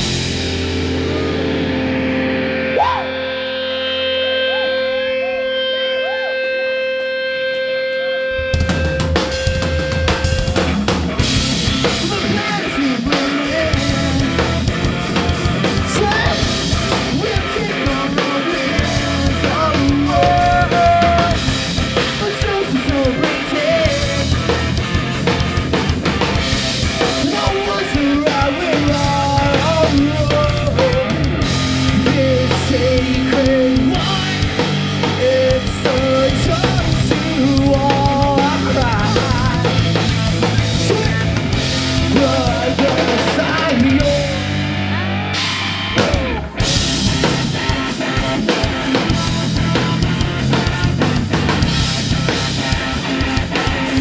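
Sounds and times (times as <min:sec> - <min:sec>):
guitar chord ringing: 0:00.0 - 0:10.6
live rock band playing: 0:00.0 - 0:54.0.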